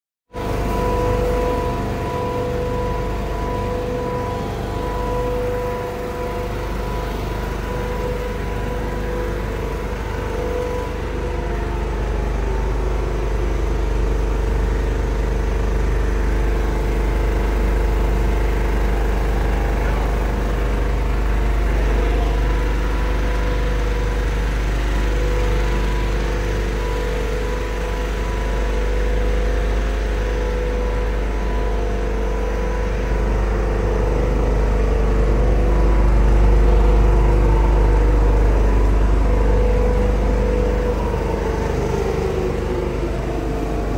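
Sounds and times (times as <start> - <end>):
quilting machine running: 0.4 - 43.9.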